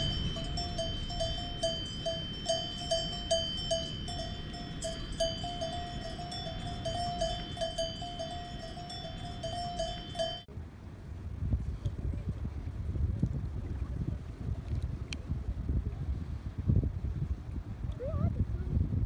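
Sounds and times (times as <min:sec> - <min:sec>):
cowbell clanging: 0:00.0 - 0:10.5.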